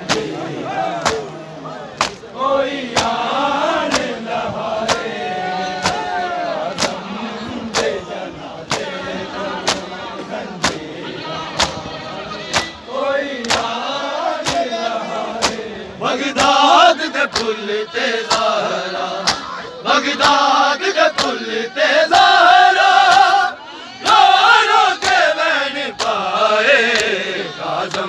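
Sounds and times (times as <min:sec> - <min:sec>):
hands slapping chests: 0:00.0 - 0:00.4, 0:01.0 - 0:01.4, 0:02.0 - 0:02.3, 0:02.9 - 0:03.2, 0:03.9 - 0:04.2, 0:04.8 - 0:05.1, 0:05.8 - 0:06.1, 0:06.7 - 0:07.0, 0:07.7 - 0:08.0, 0:08.7 - 0:09.0, 0:09.6 - 0:09.9, 0:10.6 - 0:10.8, 0:11.6 - 0:11.8, 0:13.4 - 0:13.8, 0:14.4 - 0:14.7, 0:15.4 - 0:15.6, 0:18.2 - 0:18.5, 0:19.2 - 0:19.5, 0:26.9 - 0:27.2
crowd chanting in unison: 0:00.0 - 0:28.0.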